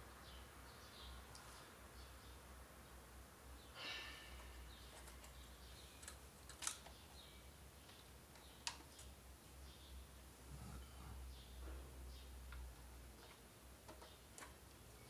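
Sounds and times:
sharp small plastic clicks: 0:06.0 - 0:07.0, 0:08.3 - 0:09.1.

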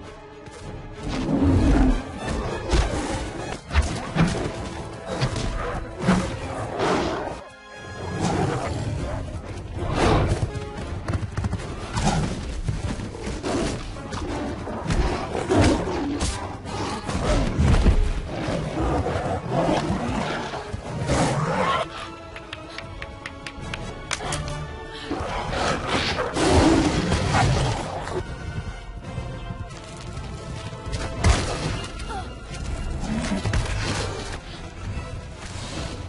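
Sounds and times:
dramatic film music: 0:00.0 - 0:36.0
animals snarling and growling: 0:01.0 - 0:07.4, 0:08.0 - 0:10.5, 0:11.7 - 0:22.2, 0:25.0 - 0:28.3, 0:32.8 - 0:34.6.

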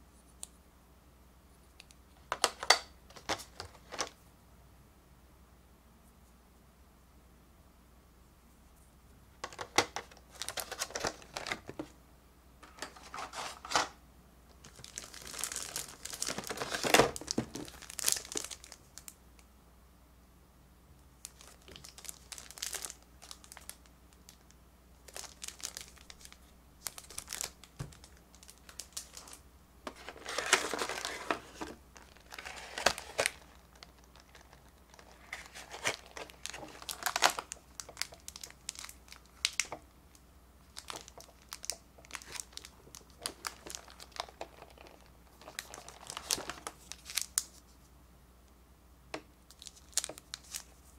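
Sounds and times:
plastic packaging crinkling: 0:09.4 - 0:11.9, 0:12.6 - 0:14.0, 0:14.6 - 0:19.2, 0:21.2 - 0:39.9, 0:40.6 - 0:47.7, 0:49.5 - 0:50.9.

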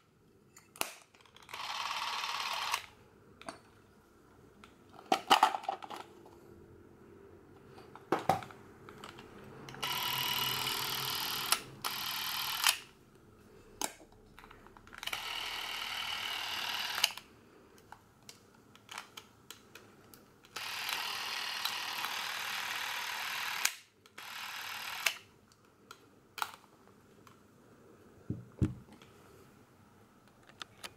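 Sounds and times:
camera motor whirring: 0:01.5 - 0:02.9, 0:09.8 - 0:12.9, 0:15.0 - 0:17.2, 0:20.6 - 0:25.2.

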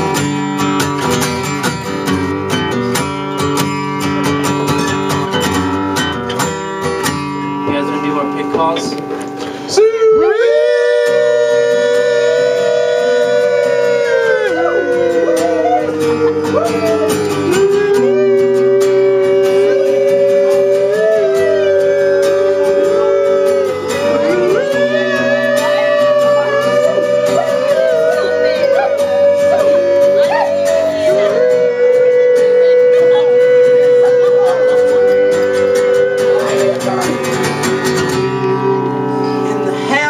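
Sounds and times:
acoustic guitar strumming: 0:00.0 - 0:40.0
wordless singing in harmony: 0:09.8 - 0:39.7.

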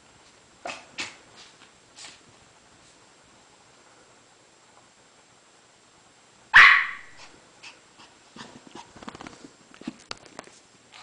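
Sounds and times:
puppy barking: 0:06.5 - 0:07.3.

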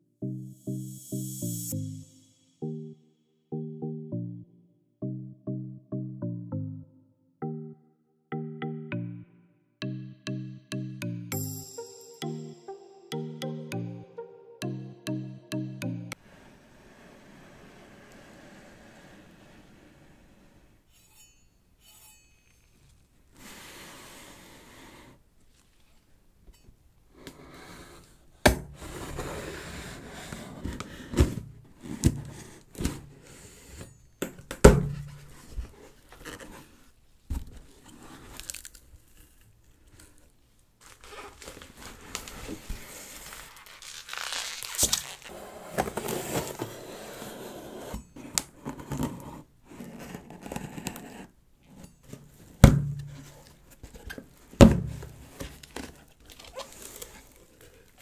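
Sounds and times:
box scraping and knocking: 0:28.7 - 0:34.0, 0:45.3 - 0:56.1
packaging crinkling and tearing: 0:38.2 - 0:45.4, 0:55.5 - 0:58.0.

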